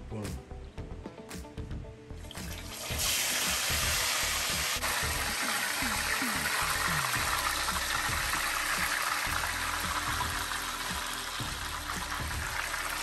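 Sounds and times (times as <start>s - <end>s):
fish sizzling in hot oil: 2.6s - 13.0s.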